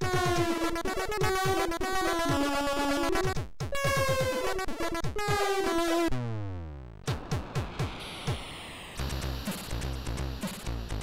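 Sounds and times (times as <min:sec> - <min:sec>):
ticking rhythm: 0:00.0 - 0:05.9
chiptune melody with synth drums: 0:00.0 - 0:06.1
falling synth sweep: 0:07.1 - 0:10.3.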